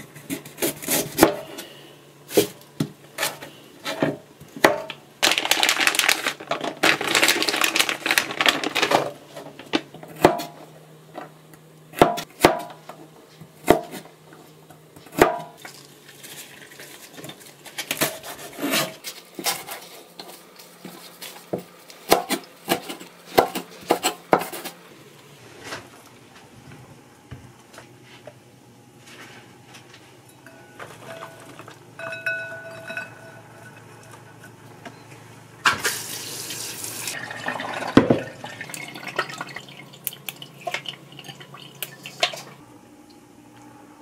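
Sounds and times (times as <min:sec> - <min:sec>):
knife chopping on cutting board: 0:22.0 - 0:24.7
glass bowl ringing: 0:30.3 - 0:33.9.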